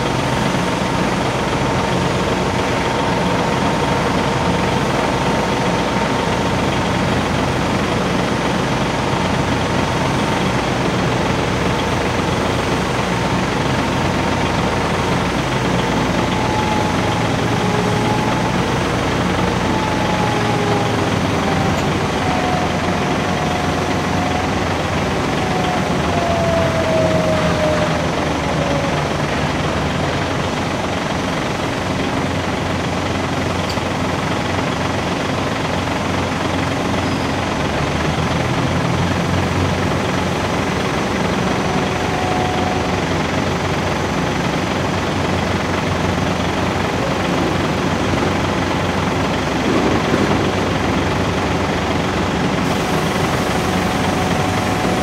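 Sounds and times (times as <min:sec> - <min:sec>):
diesel engine rumbling: 0:00.0 - 0:55.0
thin whine: 0:52.5 - 0:55.0.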